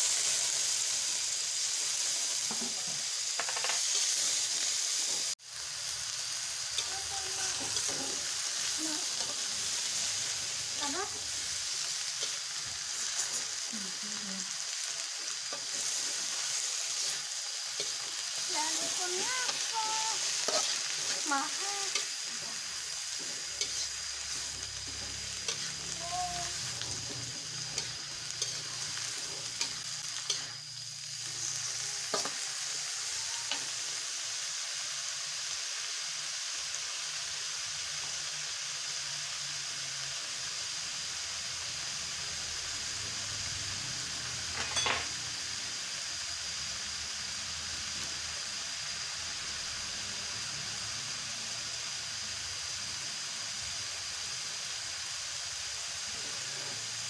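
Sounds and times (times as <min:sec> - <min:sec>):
vegetables sizzling in a wok: 0:00.0 - 0:57.0
metal spatula scraping a pan: 0:15.5 - 0:25.9.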